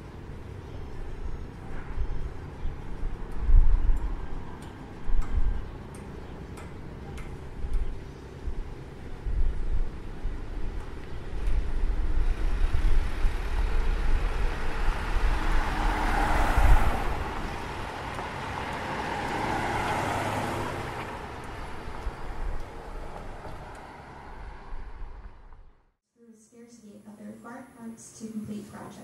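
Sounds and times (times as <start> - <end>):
vehicles passing by: 0.0 - 25.9
low traffic rumble: 0.0 - 26.0.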